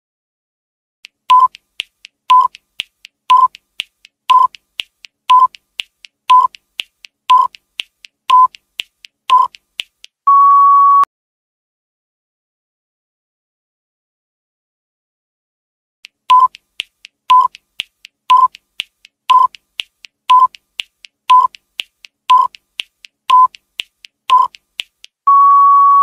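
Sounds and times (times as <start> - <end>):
faint ticks: 1.0 - 10.2, 16.0 - 25.2
short timer beeps: 1.3 - 1.6, 2.3 - 2.6, 3.3 - 3.6, 4.3 - 4.6, 5.3 - 5.6, 6.3 - 6.6, 7.3 - 7.6, 8.3 - 8.6, 9.3 - 9.6, 16.3 - 16.6, 17.3 - 17.6, 18.3 - 18.6, 19.3 - 19.6, 20.3 - 20.6, 21.3 - 21.6, 22.3 - 22.6, 23.3 - 23.6, 24.3 - 24.6
longer higher beep: 10.3 - 11.1, 25.3 - 26.0.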